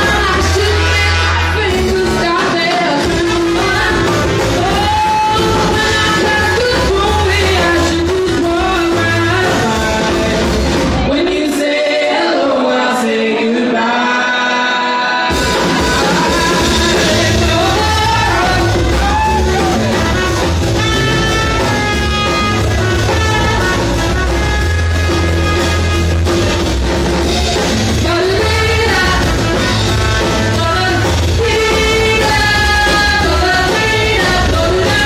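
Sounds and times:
trumpet: 0.0 - 11.2, 15.0 - 35.0
upright bass: 0.0 - 11.5, 15.3 - 35.0
drum kit: 0.0 - 11.8, 15.2 - 35.0
woman singing: 0.0 - 20.0, 27.9 - 35.0.

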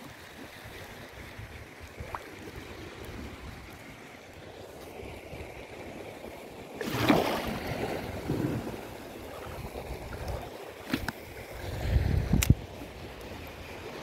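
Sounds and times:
sea water sloshing and splashing: 0.0 - 14.0.

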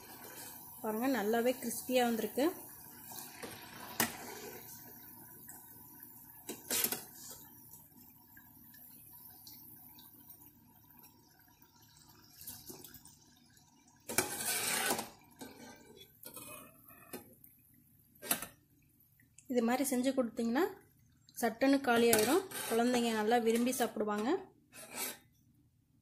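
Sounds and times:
snack balls sizzling in oil: 0.0 - 8.1.

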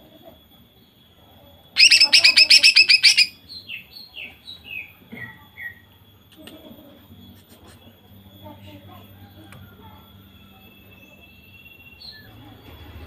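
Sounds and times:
bird downward-sliding whistles: 1.8 - 3.4
bird singing rapid notes: 1.8 - 3.8.

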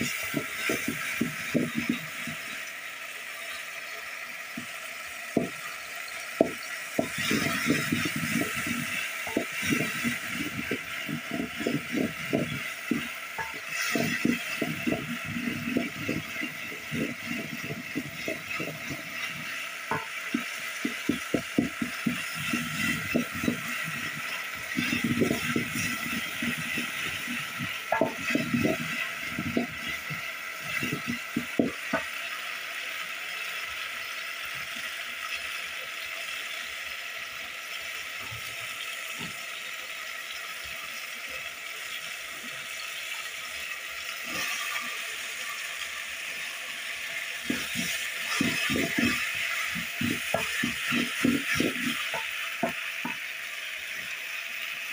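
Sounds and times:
utensil scraping metal pot: 0.0 - 2.7, 5.3 - 32.1, 44.1 - 53.2
faint frying sizzle: 0.0 - 54.9.

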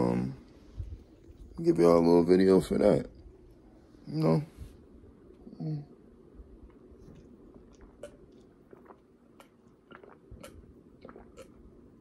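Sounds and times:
man gulping water: 6.8 - 12.0.

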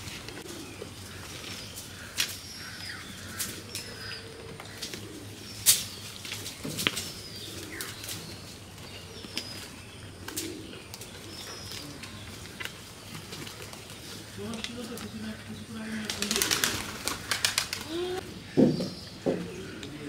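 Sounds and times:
small birds chirping: 0.1 - 20.0.

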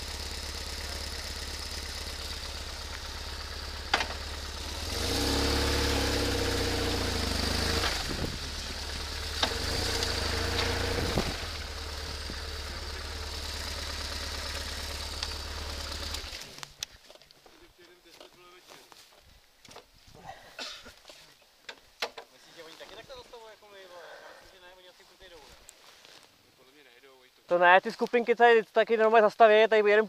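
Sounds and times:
motorcycle engine idling: 0.0 - 16.7.

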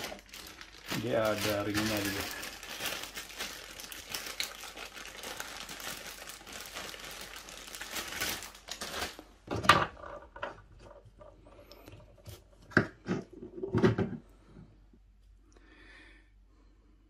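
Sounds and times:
crinkling crumpling rustle: 0.0 - 9.4.

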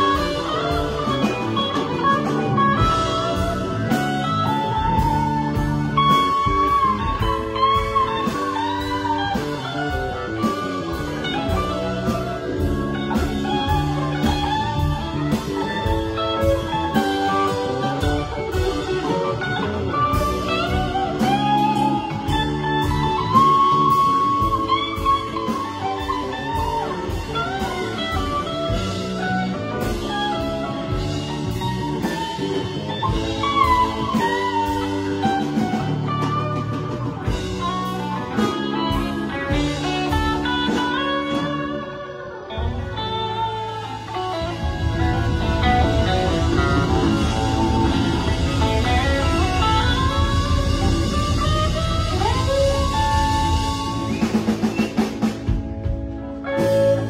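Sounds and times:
drum kit beat: 0.0 - 57.0
electric bass: 0.0 - 57.0
electric guitar lead: 0.0 - 57.0
keyboards: 0.0 - 57.0.

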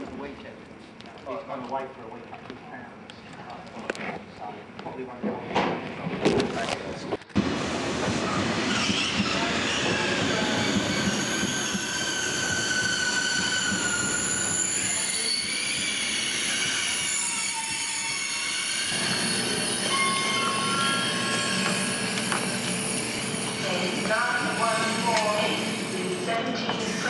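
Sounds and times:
train rumble: 5.2 - 17.6
train wheels squealing: 8.2 - 27.0.

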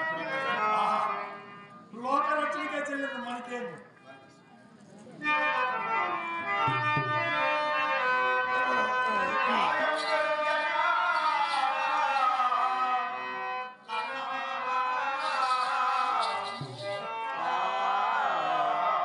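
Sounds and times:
harmonium drone: 0.0 - 3.2, 5.2 - 19.0
person singing wavering lines: 8.7 - 17.1.

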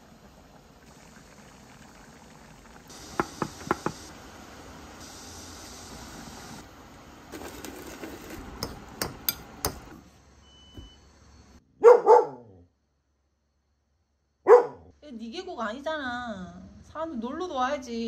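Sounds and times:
dog barking: 11.8 - 12.7, 14.4 - 14.9.

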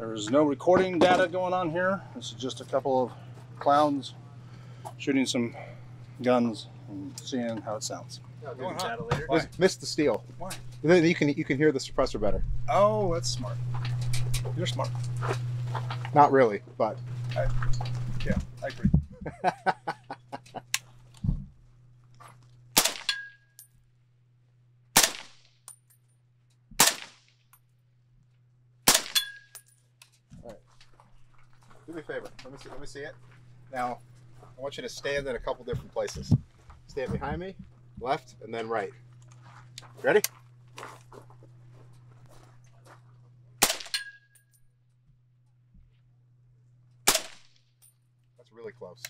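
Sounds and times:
suppressed rifle shots: 22.8 - 23.2, 25.0 - 25.4, 26.8 - 27.2, 28.9 - 29.3, 43.6 - 44.1, 47.1 - 47.6
steel target ringing: 22.8 - 23.6, 28.9 - 29.7, 43.6 - 44.5.

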